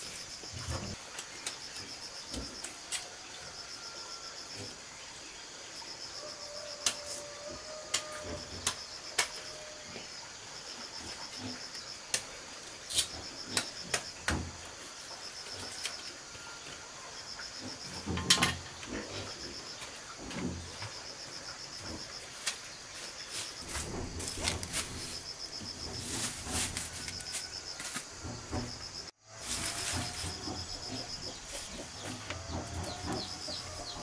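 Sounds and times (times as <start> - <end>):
insects chirping: 0.0 - 34.0
sharp knocks and clatter: 12.9 - 14.7, 17.6 - 21.1, 21.7 - 34.0.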